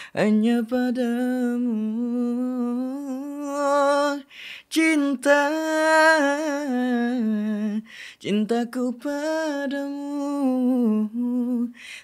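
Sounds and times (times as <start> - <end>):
man singing unaccompanied: 0.0 - 12.0
quick breath: 4.3 - 4.7, 7.8 - 8.2, 11.7 - 12.0.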